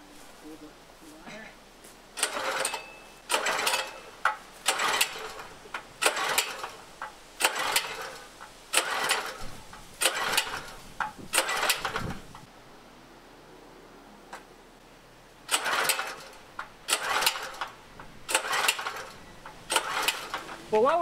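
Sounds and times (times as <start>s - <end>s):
recoil starter pulls whirring: 2.2s - 12.5s, 15.4s - 20.8s.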